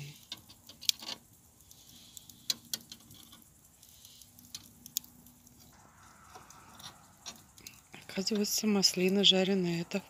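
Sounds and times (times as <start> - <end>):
sharp pops of fire: 0.0 - 9.2
wood fire crackling: 0.0 - 10.0.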